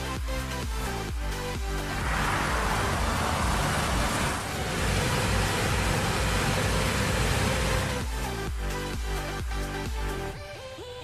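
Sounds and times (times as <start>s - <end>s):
low engine rumble: 1.3s - 10.3s
grain pouring from auger: 1.8s - 8.3s.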